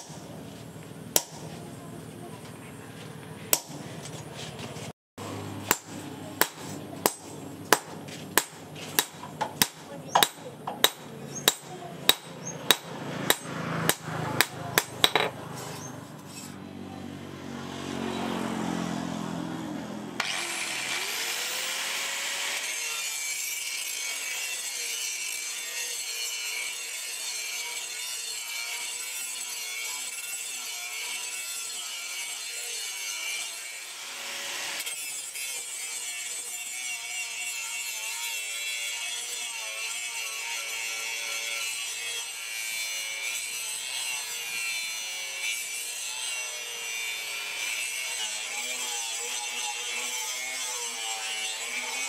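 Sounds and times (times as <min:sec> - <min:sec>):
angle grinder grinding steel: 0:00.0 - 0:52.0
hammer striking steel on anvil: 0:01.1 - 0:01.6, 0:03.5 - 0:03.8, 0:05.5 - 0:16.6.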